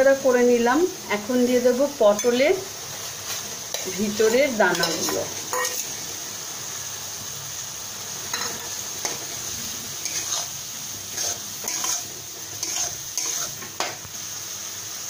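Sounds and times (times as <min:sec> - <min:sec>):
hot oil sizzling: 0:00.0 - 0:15.0
metal spatula scraping pan: 0:03.7 - 0:06.0, 0:10.0 - 0:13.6.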